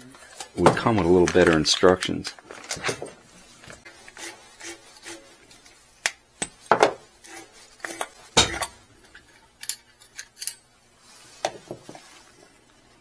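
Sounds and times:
small metal parts clinking: 9.0s - 10.7s.

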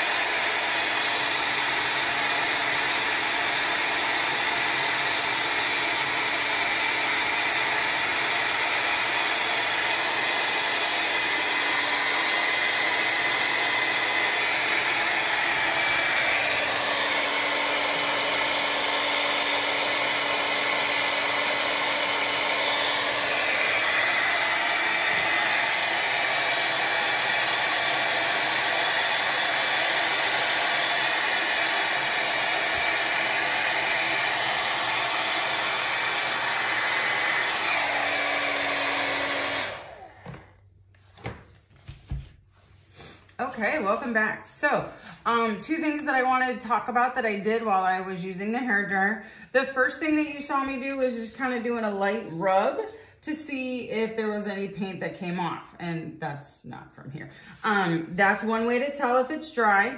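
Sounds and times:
hair dryer blowing air: 0.0s - 41.4s, 42.1s - 55.7s, 57.3s - 59.9s.

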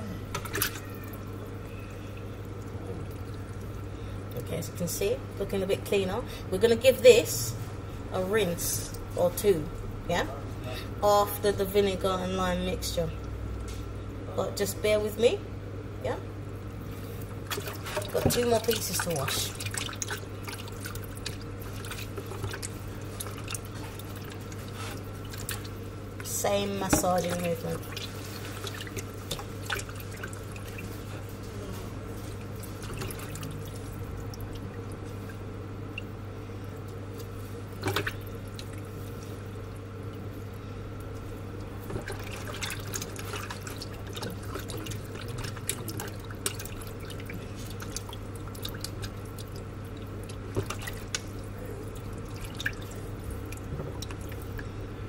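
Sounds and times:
steady low hum: 0.0s - 55.0s
hands rubbing chicken in water: 16.9s - 54.7s
water splashing and dripping: 17.4s - 31.2s, 32.2s - 54.7s.

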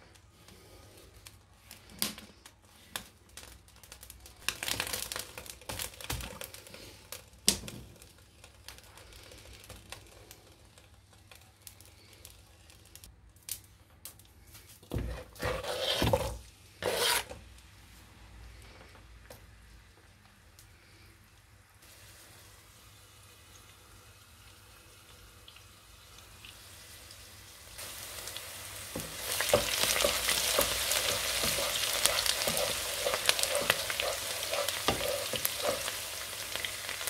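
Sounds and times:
scraping in a pot: 15.1s - 17.4s, 29.2s - 37.0s.

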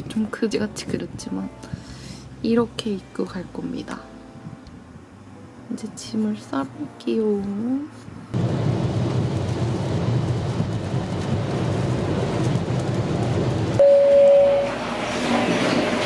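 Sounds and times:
road and rain rumble in car: 8.1s - 14.2s
steady tone: 13.8s - 15.0s.

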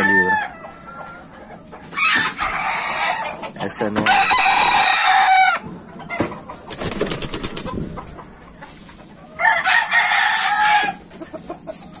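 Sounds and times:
rooster crowing: 0.0s - 1.2s, 4.1s - 5.6s, 9.4s - 11.0s.

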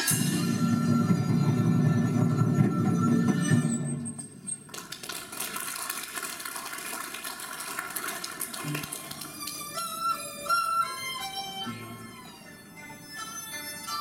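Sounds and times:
traditional orchestra ensemble: 0.0s - 4.4s, 8.8s - 14.0s
bowed fiddle melody with vibrato: 9.3s - 14.0s.

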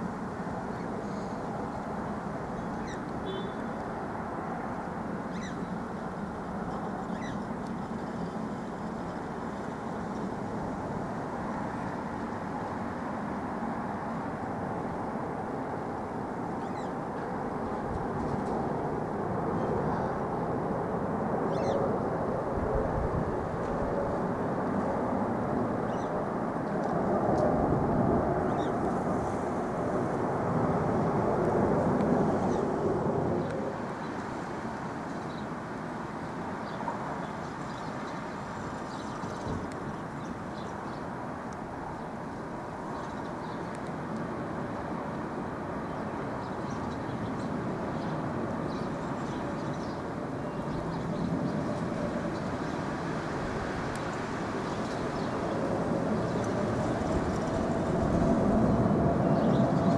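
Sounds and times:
jet engines rumbling overhead: 0.0s - 59.9s
jet engine rumbling: 14.9s - 34.2s, 50.2s - 59.9s.

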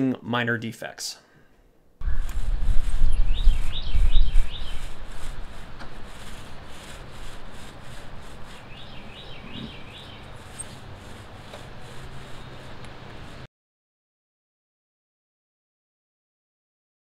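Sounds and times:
bird chirping: 2.0s - 5.1s, 8.4s - 10.9s, 11.5s - 13.4s
paint roller rolling on wood: 2.0s - 13.5s.

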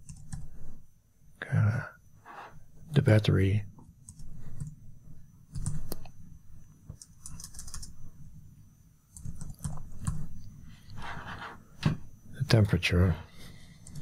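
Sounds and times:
computer keyboard typing: 0.0s - 0.7s, 4.0s - 4.8s, 5.5s - 6.1s, 6.9s - 8.0s, 9.1s - 10.4s, 13.8s - 14.0s.

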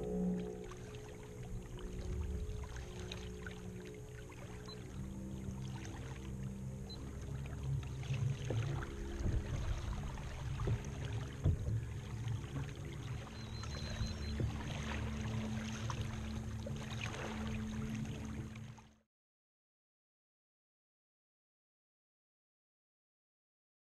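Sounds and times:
water splashing against kayak hull: 0.0s - 18.9s
steady low hum: 0.0s - 19.0s.

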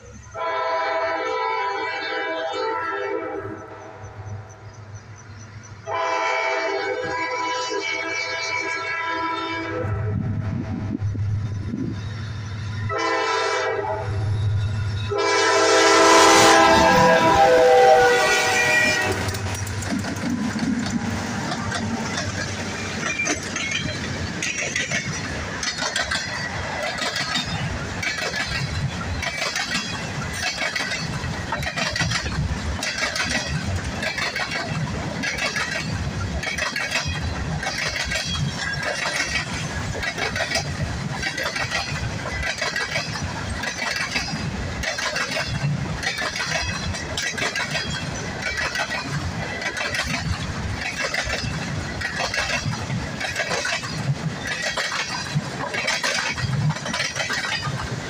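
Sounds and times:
freight train rumbling past: 0.0s - 58.0s
train wheels clacking: 14.4s - 58.0s.

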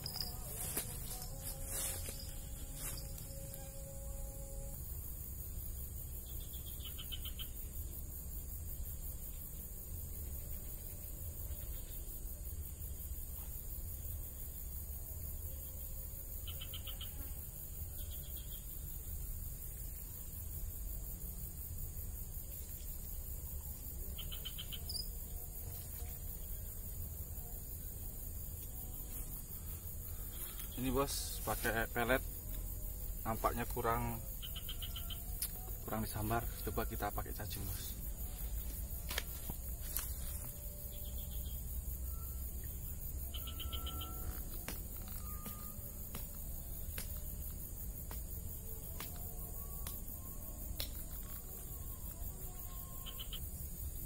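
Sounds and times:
animal pulsed trills: 0.0s - 8.0s, 8.8s - 54.0s
short high chirps and pulsed calls: 43.3s - 44.4s.

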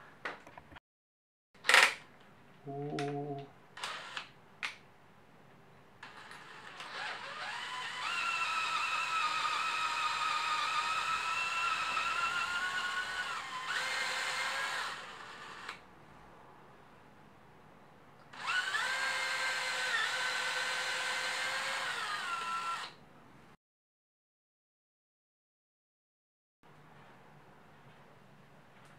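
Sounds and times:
cordless drill motor whining: 3.8s - 4.3s, 6.0s - 15.8s, 18.4s - 23.0s.

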